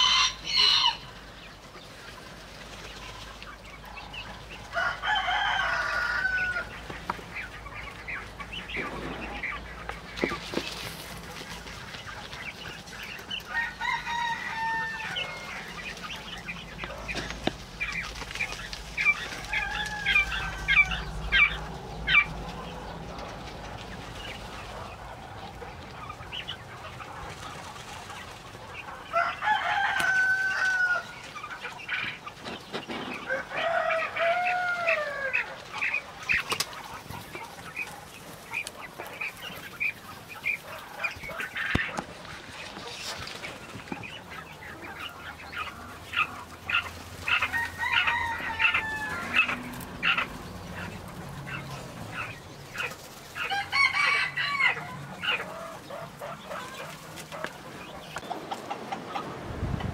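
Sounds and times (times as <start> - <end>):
rooster crowing: 0.0 - 1.2, 4.7 - 6.8, 13.4 - 16.0, 19.0 - 22.3, 29.0 - 31.2, 33.1 - 35.6, 47.2 - 50.4, 53.4 - 55.8
hens clucking: 0.0 - 59.9.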